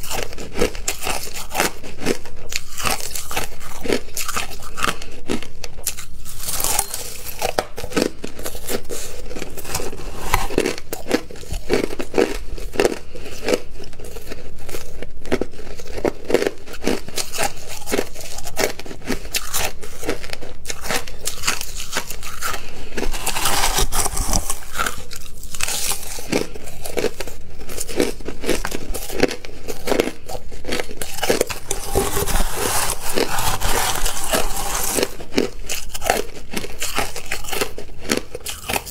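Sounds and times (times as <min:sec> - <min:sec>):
crushed ice being chewed: 0:00.0 - 0:38.9
metal spoon scraping ice in bowl: 0:06.3 - 0:07.5, 0:21.4 - 0:26.3, 0:31.0 - 0:36.1.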